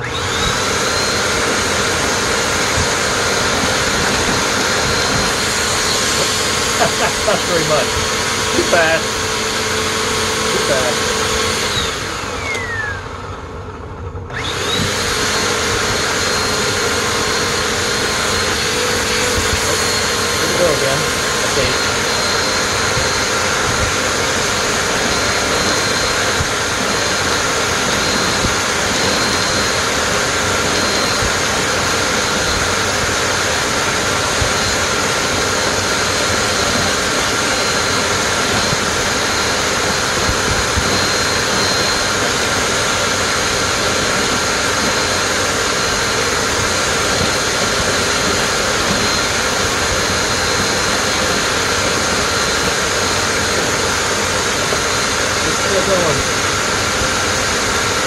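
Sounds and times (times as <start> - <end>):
hose sucking up popcorn: 0.0 - 13.0, 14.5 - 58.0
vacuum cleaner running: 0.0 - 58.0.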